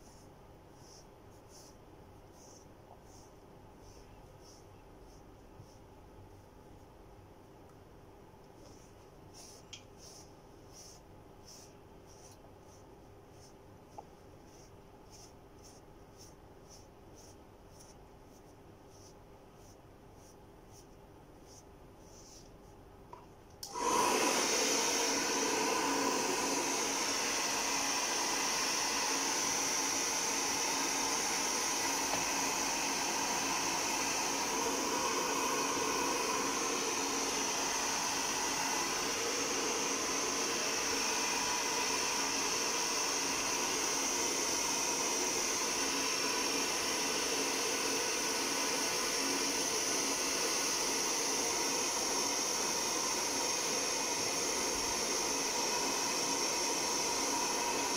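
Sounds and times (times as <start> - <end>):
hair dryer running: 23.6 - 57.9.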